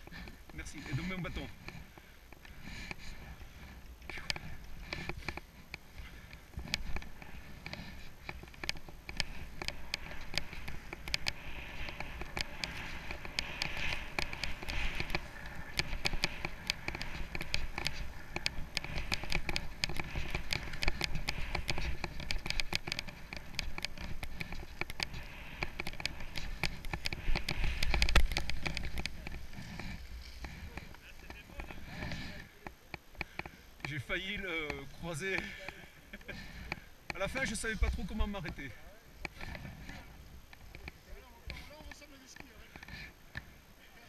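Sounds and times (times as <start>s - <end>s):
skis hissing over snow: 9.0s - 32.4s.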